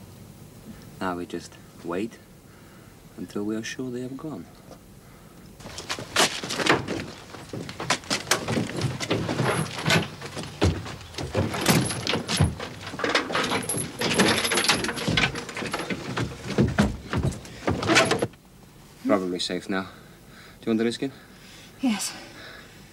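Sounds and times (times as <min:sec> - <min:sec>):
boot thuds on wooden truck bed: 0:05.6 - 0:13.2, 0:15.9 - 0:18.3
rifles and kit rattling: 0:05.6 - 0:18.4.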